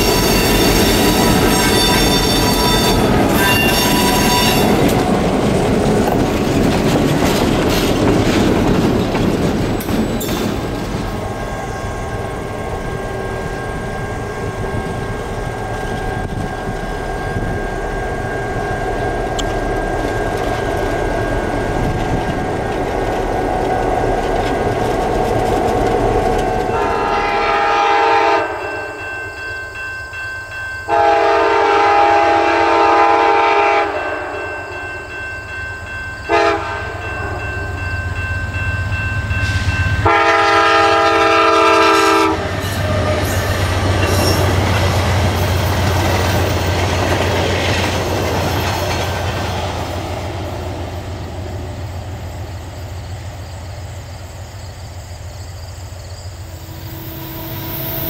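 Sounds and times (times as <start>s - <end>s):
train horn blasts: 0.0s - 5.0s, 26.6s - 29.1s, 30.9s - 35.0s, 36.3s - 37.8s, 39.4s - 44.4s, 56.4s - 58.0s
train rumbling past: 0.0s - 58.0s.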